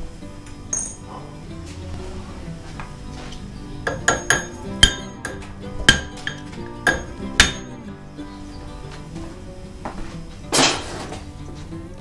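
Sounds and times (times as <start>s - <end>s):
brass rod knocking on steel: 3.9s - 7.8s.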